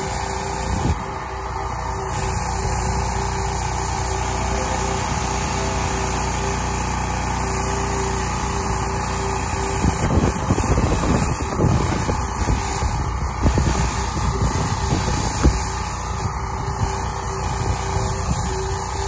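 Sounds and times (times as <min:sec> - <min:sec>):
pressure washer engine running: 0:00.0 - 0:19.0
water spraying against siding: 0:00.0 - 0:19.0
wind buffeting microphone: 0:09.8 - 0:18.6.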